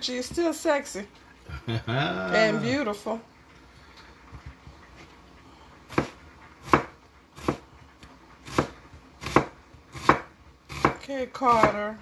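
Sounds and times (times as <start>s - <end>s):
knife slicing onion on plastic board: 5.9s - 7.7s, 8.4s - 11.9s.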